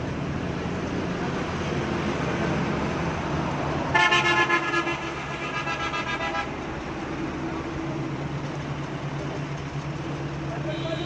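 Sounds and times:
vehicle horn: 3.9 - 6.6, 10.6 - 11.0
crane engine running: 6.6 - 10.7.

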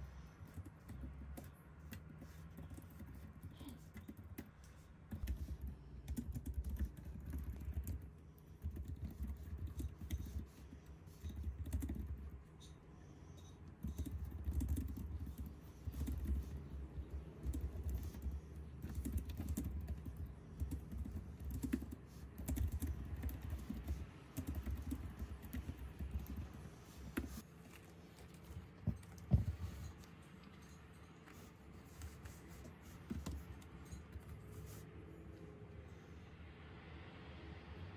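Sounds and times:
fast keyboard typing: 0.4 - 12.5, 13.7 - 27.4.

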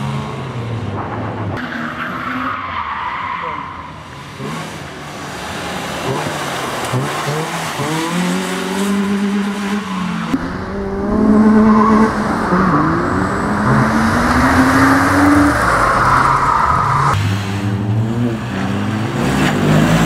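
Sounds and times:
car engine revving hard: 5.8 - 17.3.

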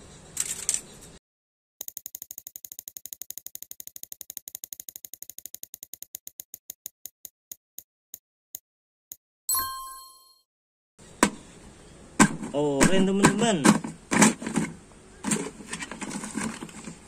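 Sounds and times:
prize wheel ticking clicks: 1.8 - 6.8
short bright chime: 9.5 - 10.4.

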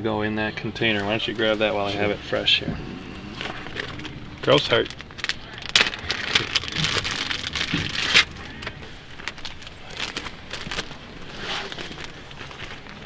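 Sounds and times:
plastic bags rustling and crinkling: 0.8 - 13.0.

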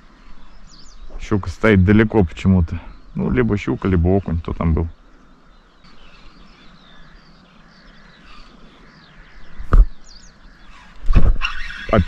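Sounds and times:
birds chirping: 0.0 - 12.0
sharp thump: 9.6 - 9.9, 11.1 - 11.4.

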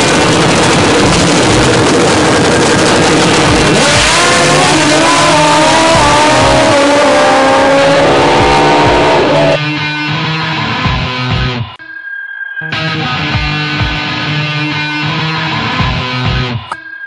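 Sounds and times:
drag bike engine at full throttle: 0.0 - 9.6.

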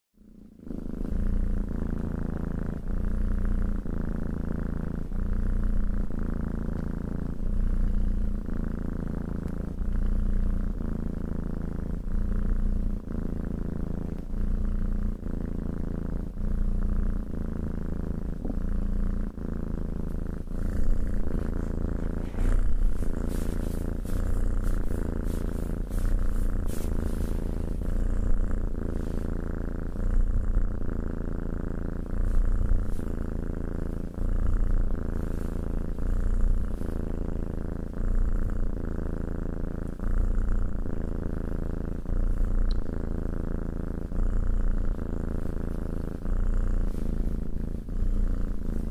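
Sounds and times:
cat purring: 0.0 - 48.9
hand rustling on fur: 20.6 - 28.1, 28.8 - 29.3, 35.2 - 35.7, 46.8 - 47.6.

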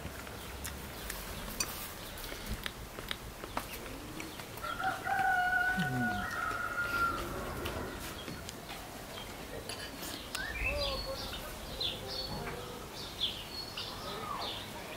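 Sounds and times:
small birds chirping: 0.1 - 14.9
murmur of voices: 5.6 - 8.2.

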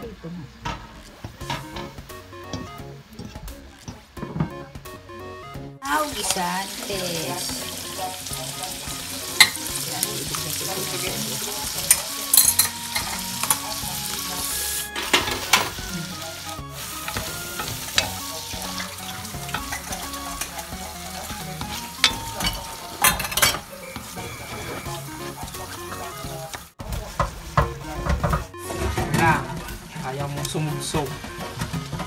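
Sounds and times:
food sizzling in a pan: 5.8 - 27.6, 29.5 - 32.0
spatula scraping and knocking pan: 16.8 - 32.0.

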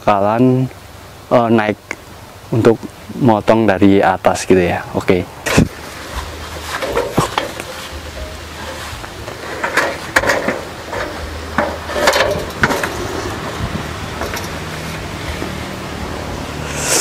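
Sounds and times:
metal stepladder clanking: 5.5 - 13.4, 14.2 - 14.9.

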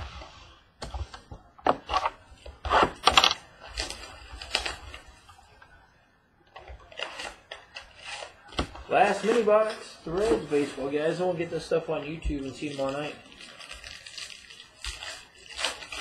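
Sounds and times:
foil wrapper crinkling and tearing: 3.1 - 5.1, 12.4 - 16.0.

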